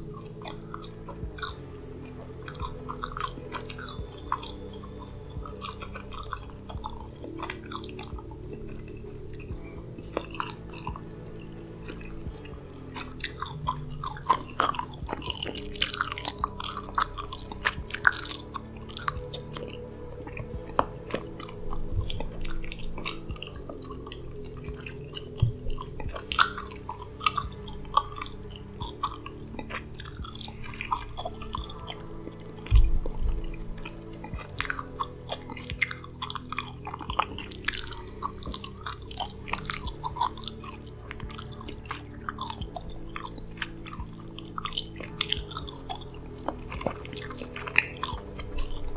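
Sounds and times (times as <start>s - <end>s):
soft low background music: 0.0s - 48.9s
gum chewing mouth clicks: 0.1s - 11.1s, 11.8s - 48.9s
heavy low thump: 32.7s - 34.4s.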